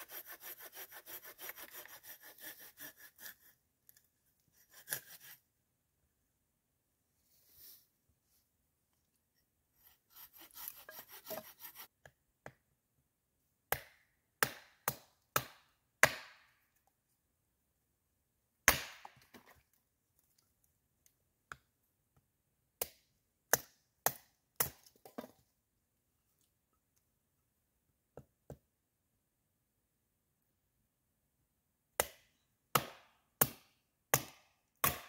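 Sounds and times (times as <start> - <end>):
hatchet chopping wood: 10.2 - 11.8, 13.7 - 16.6, 18.6 - 19.2, 22.8 - 25.3, 32.0 - 35.0.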